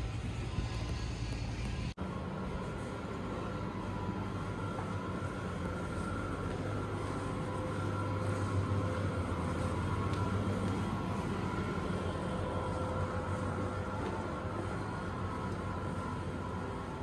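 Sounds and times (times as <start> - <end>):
low machinery drone: 0.0 - 17.0.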